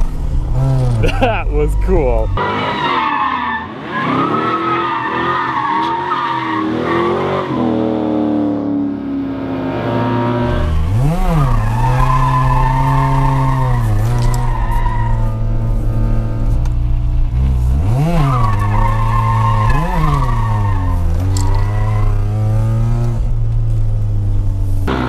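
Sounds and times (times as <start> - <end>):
car engines revving: 0.0 - 25.0
tyres squealing and skidding: 2.2 - 7.8, 10.0 - 15.7, 17.8 - 22.7.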